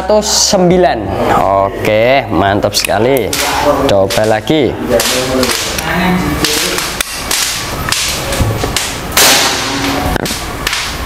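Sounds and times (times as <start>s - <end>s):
air rifle shot: 8.9s - 11.0s.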